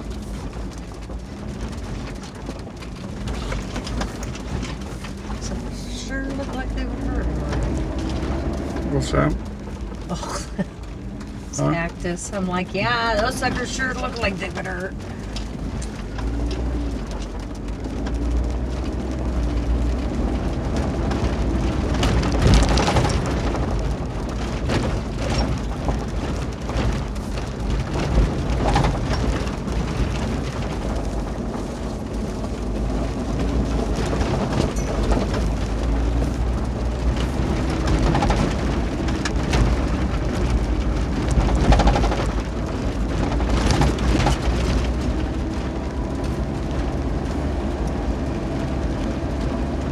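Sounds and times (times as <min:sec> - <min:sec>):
car engine: 0:00.0 - 0:49.9
tyres rumbling on gravel: 0:00.0 - 0:49.9
loud vehicle bumps: 0:20.7 - 0:31.2, 0:33.4 - 0:45.7.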